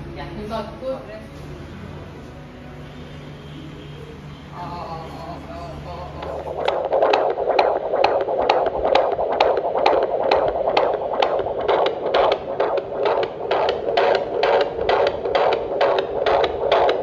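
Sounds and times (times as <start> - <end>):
fetal heartbeat on doppler speaker: 6.2 - 17.0.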